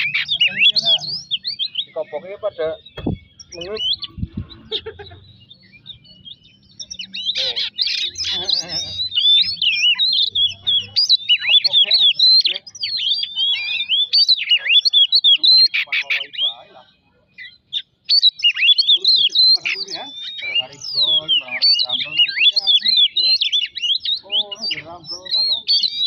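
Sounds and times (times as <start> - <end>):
bird singing whistles and chatter: 0.0 - 26.0.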